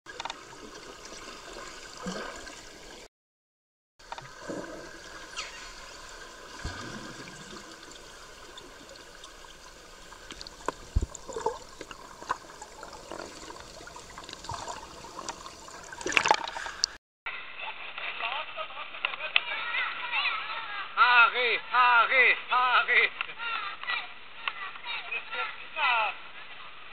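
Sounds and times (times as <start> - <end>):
water splashing: 0.1 - 3.1, 4.0 - 17.0
underwater clicks and knocks: 10.3 - 13.4.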